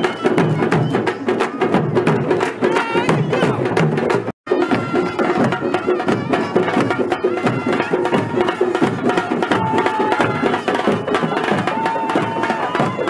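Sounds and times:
fast loud barrel drumming: 0.0 - 13.0
wind instrument long notes: 4.5 - 13.0.

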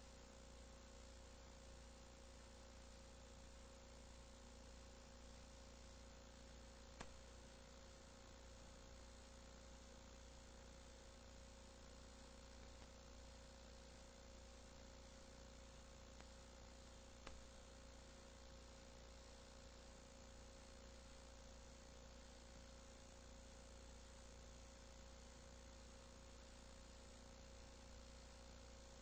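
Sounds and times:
electrical hum and hiss: 0.0 - 29.0
faint steady tone: 0.0 - 29.0
faint click: 7.0 - 7.2, 16.2 - 16.4, 17.2 - 17.4.

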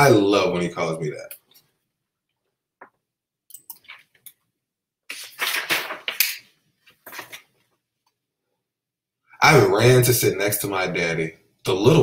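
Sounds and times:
pages rustling: 5.1 - 7.8.

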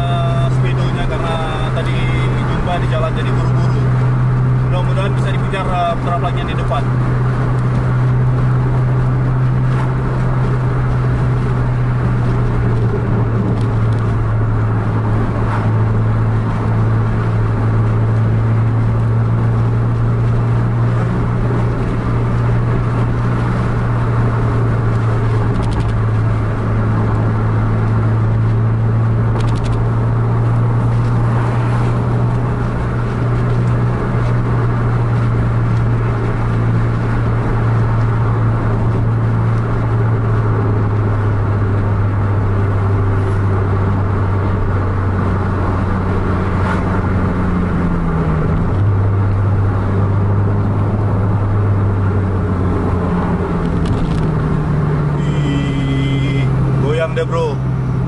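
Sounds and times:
engine drone: 0.0 - 58.0
road noise inside vehicle: 0.0 - 58.0.

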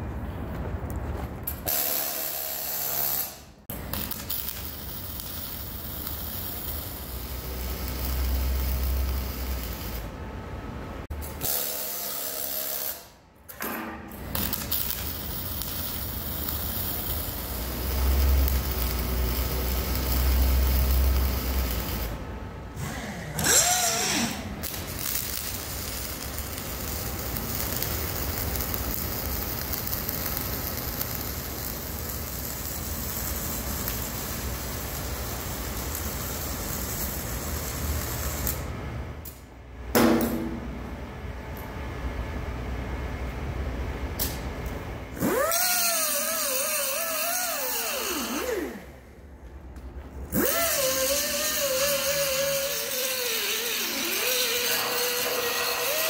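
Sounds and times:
welding arc hiss: 1.6 - 10.2, 11.2 - 13.2, 14.2 - 22.2, 23.4 - 38.7, 45.3 - 49.0, 50.3 - 56.0.

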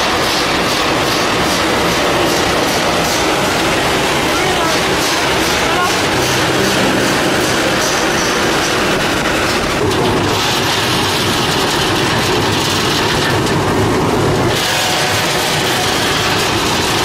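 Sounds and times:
roasting machine rattle and hum: 0.0 - 17.0.

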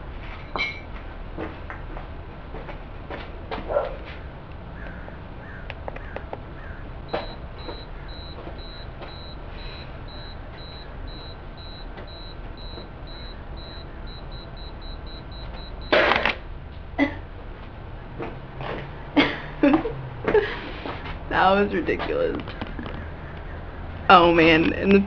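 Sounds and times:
camera self-timer beeping: 7.1 - 16.0.

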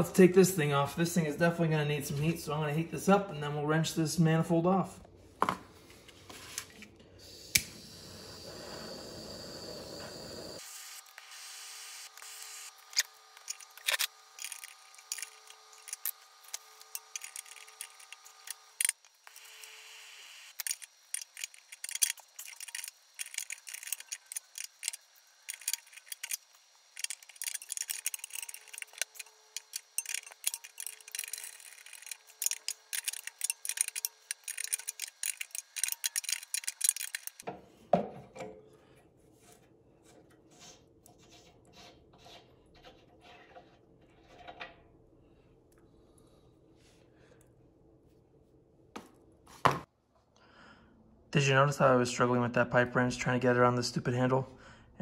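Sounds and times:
wrench and metal fittings clinking: 16.8 - 19.0, 20.6 - 37.4.

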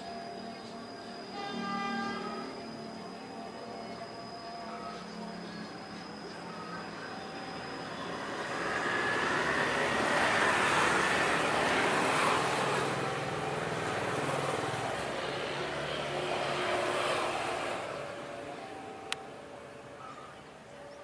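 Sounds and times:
vehicle rushing: 7.4 - 19.1.

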